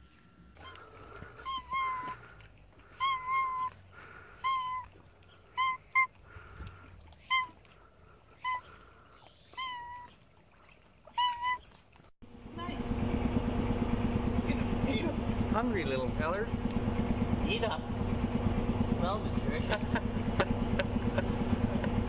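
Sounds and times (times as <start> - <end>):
cat meowing: 0.6 - 2.3, 2.9 - 3.8, 4.4 - 6.2, 7.2 - 7.7, 8.4 - 10.2, 11.1 - 11.8.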